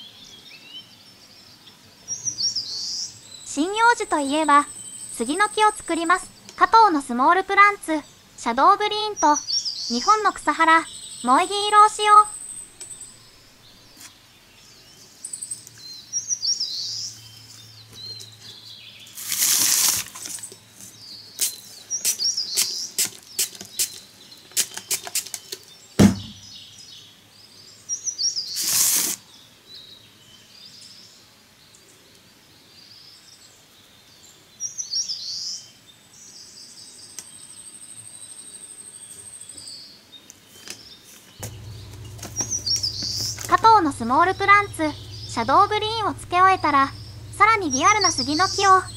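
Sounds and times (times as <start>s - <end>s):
small birds chirping: 0.0s - 48.9s
foliage rustling: 19.1s - 20.5s
sharp knock: 26.0s - 26.4s.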